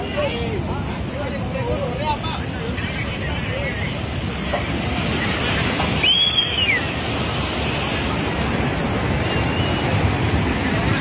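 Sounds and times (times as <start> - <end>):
flash flood water rushing: 0.0 - 11.0
high whistle: 6.0 - 7.0, 9.3 - 10.0.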